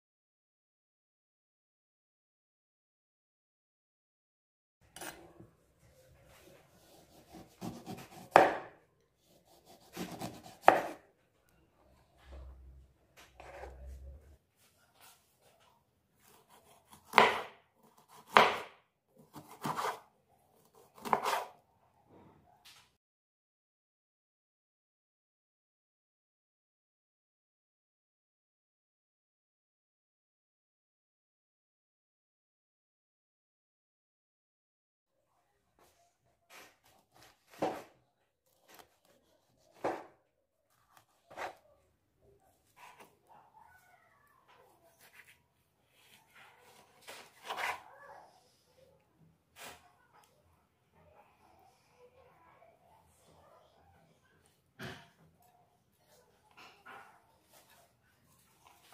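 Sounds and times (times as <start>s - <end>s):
knife slicing lemon: 5.0s - 5.3s, 6.7s - 11.0s, 16.2s - 20.0s, 20.6s - 21.6s, 38.6s - 40.1s, 40.7s - 41.6s, 46.6s - 47.8s.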